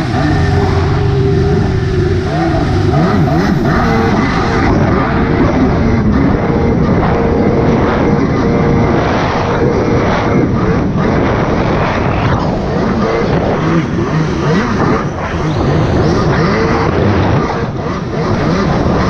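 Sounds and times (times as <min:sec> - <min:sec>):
loud rushing noise: 0:00.0 - 0:18.2
jet ski engine running: 0:00.0 - 0:19.0.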